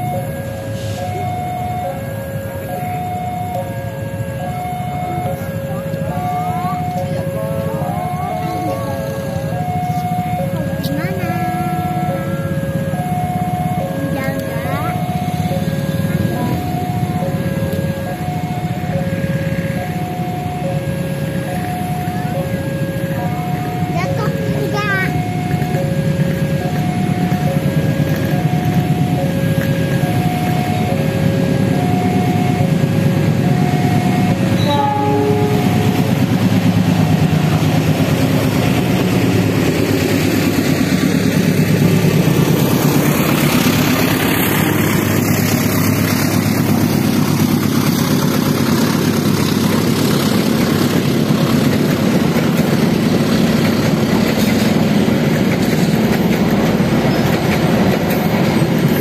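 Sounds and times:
train wheels rumbling on rail: 0.0 - 59.0
two-tone crossing bell ringing: 0.0 - 59.0
train horn: 33.5 - 36.3.

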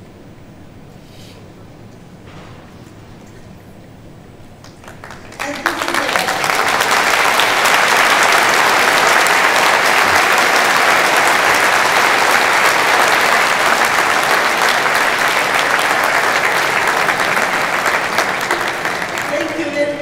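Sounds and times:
audience applauding: 4.6 - 20.0.

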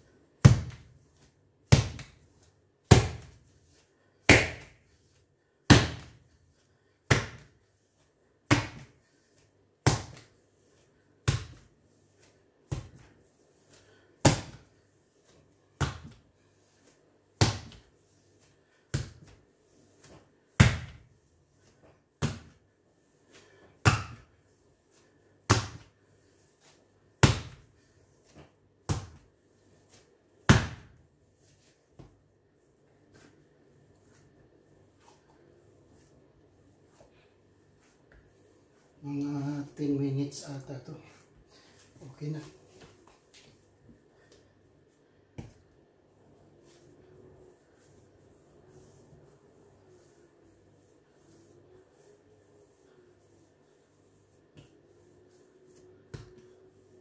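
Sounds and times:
dough slapped onto stone countertop: 4.3 - 4.8, 8.5 - 9.0, 9.8 - 10.3, 14.2 - 14.6, 15.8 - 16.2, 23.8 - 24.3, 25.5 - 25.9, 30.5 - 31.0.

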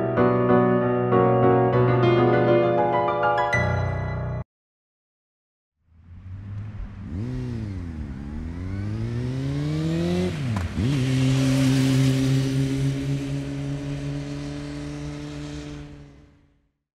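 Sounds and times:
vehicle engine accelerating: 5.8 - 16.7
rushing wind or road noise: 5.9 - 16.5.

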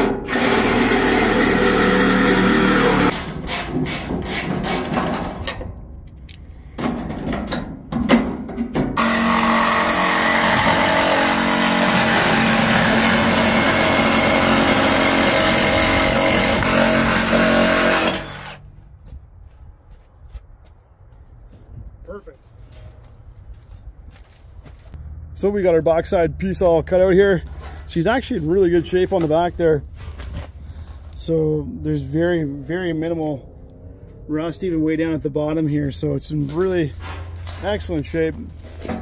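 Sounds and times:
power saw cutting sheet metal: 0.0 - 5.0, 9.0 - 18.6.

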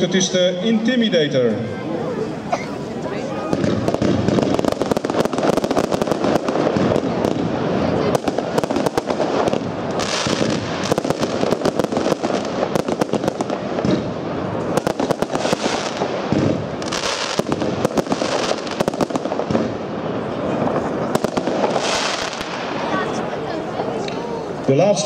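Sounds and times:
firework cake shots and bangs: 3.5 - 23.2.

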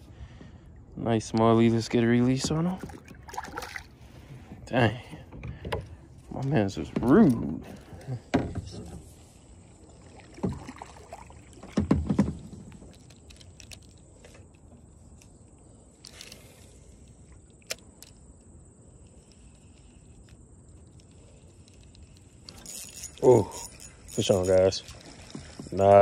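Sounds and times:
faint water sounds: 0.0 - 26.0
kayak paddle strokes: 5.3 - 15.4, 19.0 - 26.0.

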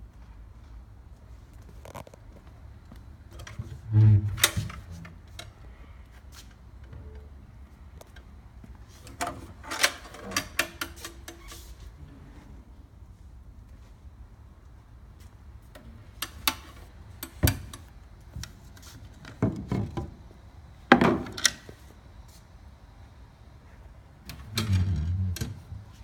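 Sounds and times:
wooden drawer sliding: 3.8 - 5.2, 24.4 - 26.0
wooden drawers knocking and scraping: 20.9 - 21.4.

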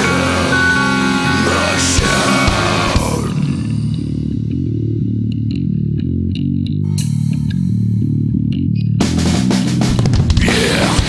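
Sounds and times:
distorted metal band: 0.0 - 5.9, 9.0 - 11.0
bass guitar playing: 0.0 - 11.0.

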